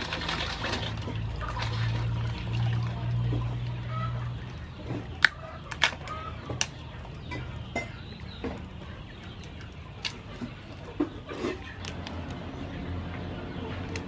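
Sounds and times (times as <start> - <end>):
crab shells clicking and knocking: 5.0 - 12.5.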